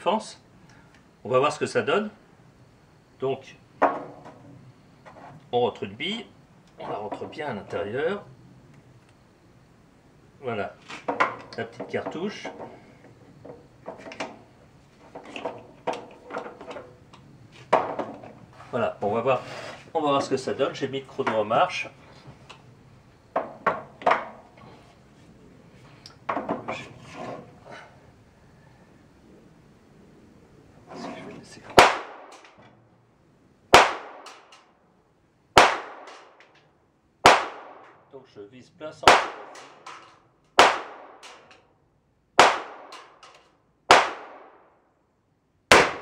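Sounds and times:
gunshots: 31.8 - 32.4, 33.7 - 34.5, 35.6 - 36.4, 37.2 - 37.9, 39.0 - 40.0, 40.6 - 41.5, 42.4 - 43.2, 43.9 - 44.6, 45.7 - 46.0.

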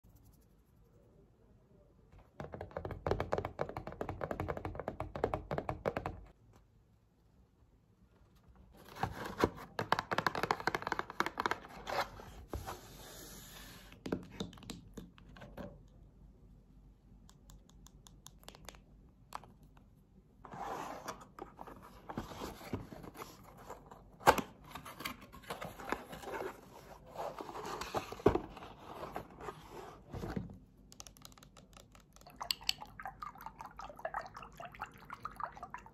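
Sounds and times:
paper and cardboard rustling: 20.5 - 30.6.

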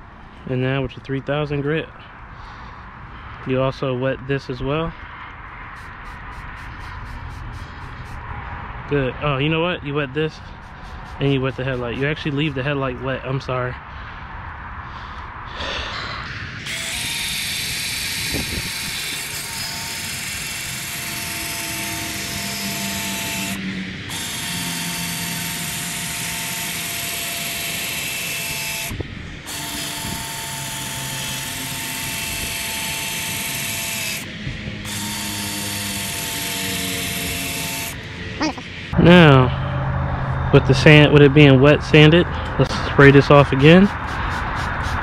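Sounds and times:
power drill sanding a lens: 5.7 - 8.2, 10.4 - 12.8, 16.7 - 38.0.

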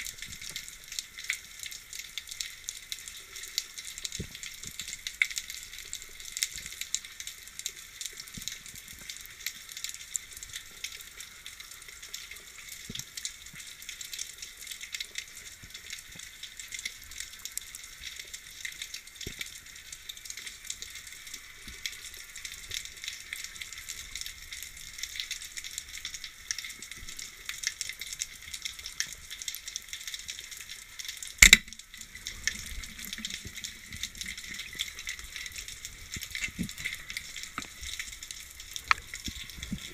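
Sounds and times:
underwater crackling and fizzing: 0.0 - 39.9
sharp loud click: 31.4 - 31.8.

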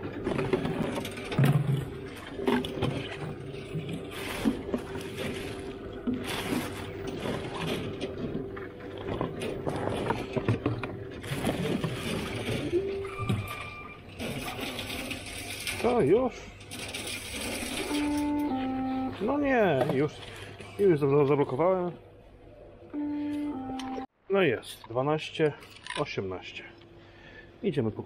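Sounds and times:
plastic bottles crinkling and knocking: 0.0 - 12.7
plastic bin bags rustling: 0.1 - 12.8
machine humming: 16.5 - 20.4, 22.5 - 24.1
short electronic tone: 17.8 - 19.2, 22.9 - 24.1.

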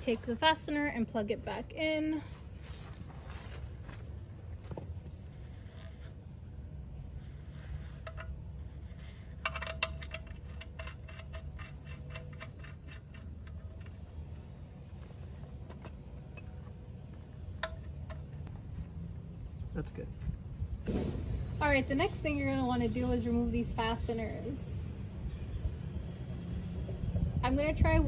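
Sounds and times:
wrench clicking: 9.4 - 14.0.

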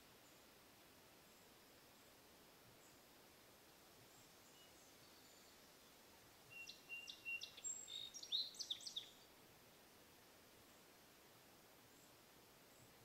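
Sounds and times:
songbird singing: 0.0 - 0.6, 1.2 - 9.4, 11.8 - 13.0
faint outdoor background: 0.0 - 13.0.

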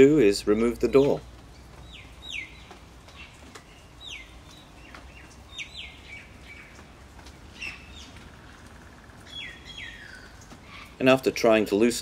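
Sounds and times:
birds whistling: 1.6 - 6.8, 7.5 - 11.0
faint clicks: 2.6 - 3.7.

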